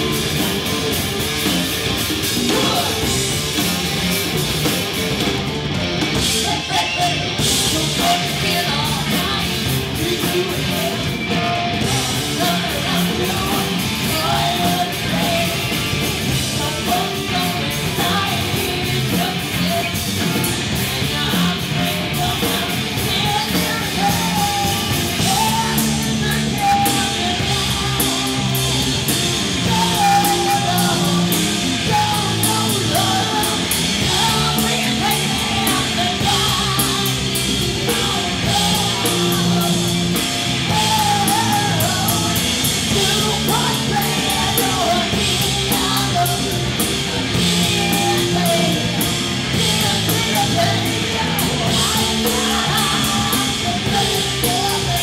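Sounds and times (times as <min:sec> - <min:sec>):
bass guitar: 0:00.0 - 0:55.0
steady drum beat: 0:00.0 - 0:55.0
woman singing into a microphone: 0:06.4 - 0:55.0.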